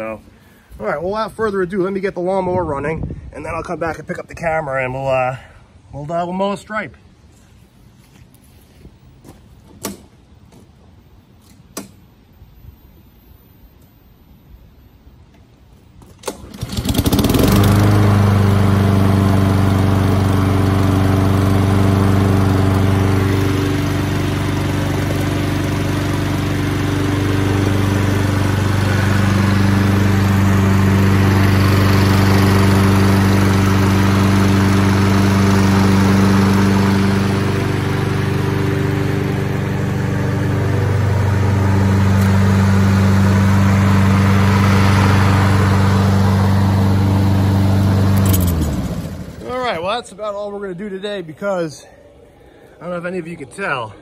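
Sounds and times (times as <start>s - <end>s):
lawn mower engine running: 16.1s - 50.9s.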